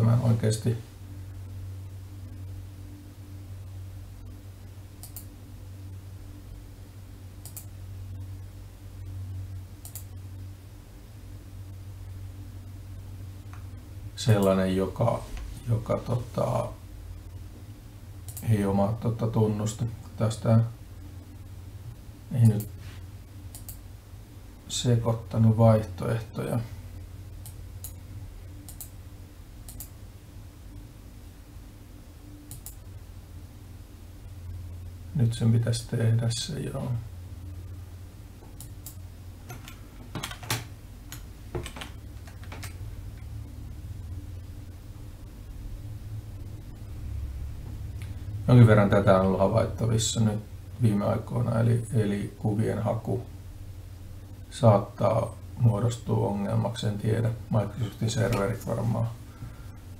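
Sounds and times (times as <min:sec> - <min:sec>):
steady low hum: 0:00.0 - 0:59.9
computer mouse clicks: 0:05.0 - 0:05.3, 0:07.4 - 0:07.7, 0:09.8 - 0:10.1, 0:18.2 - 0:18.5, 0:23.5 - 0:23.8, 0:28.6 - 0:29.0, 0:29.6 - 0:30.0, 0:32.5 - 0:32.8, 0:38.4 - 0:42.8.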